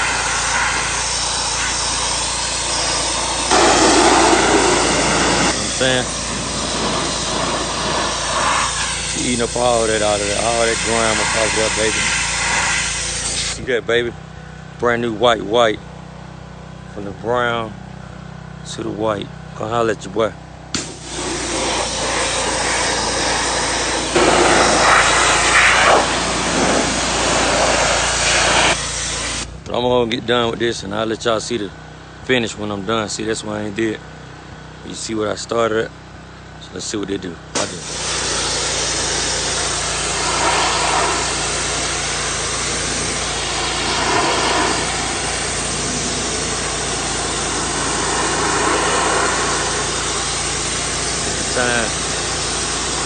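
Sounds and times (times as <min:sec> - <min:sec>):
motor humming: 0:00.0 - 0:13.7, 0:20.7 - 0:29.7, 0:37.6 - 0:53.0
pressure washer water jet hissing: 0:00.0 - 0:13.7, 0:20.8 - 0:29.6, 0:37.5 - 0:53.0.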